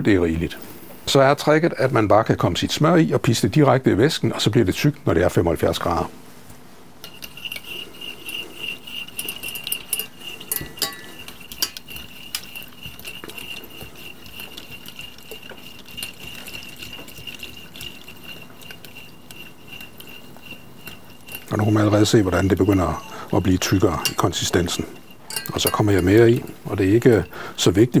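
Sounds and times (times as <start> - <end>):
induction hob high whine: 7.0 - 27.3
whisk clinking and scraping a pan: 7.0 - 28.0.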